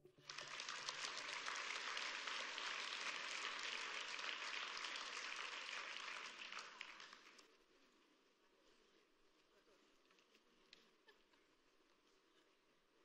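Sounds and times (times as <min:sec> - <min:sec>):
congregation applauding: 0:00.0 - 0:07.5.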